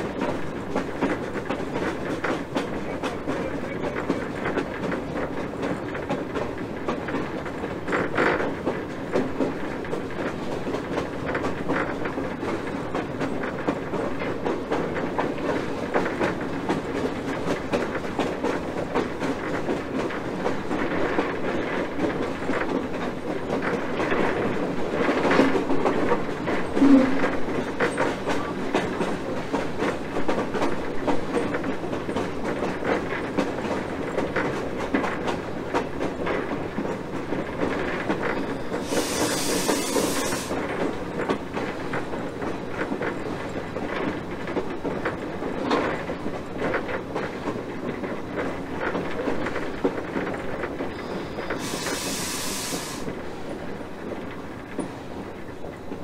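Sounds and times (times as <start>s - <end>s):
train wheels clickety-clack: 0.0s - 56.0s
steam hiss: 38.6s - 40.8s, 50.9s - 53.2s.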